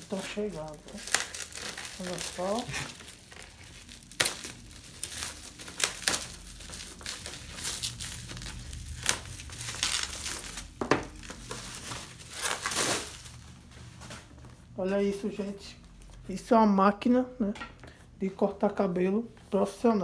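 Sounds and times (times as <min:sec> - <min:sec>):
knife slitting bubble wrap: 0:00.0 - 0:13.4
bubble wrap crinkling and tearing: 0:00.0 - 0:14.8.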